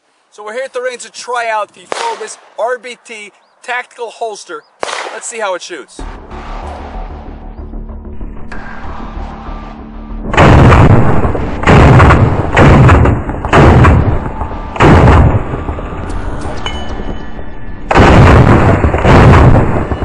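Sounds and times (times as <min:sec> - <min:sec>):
loud rifle shots: 0:01.9 - 0:02.6, 0:04.8 - 0:05.5, 0:10.3 - 0:15.5, 0:17.9 - 0:20.0.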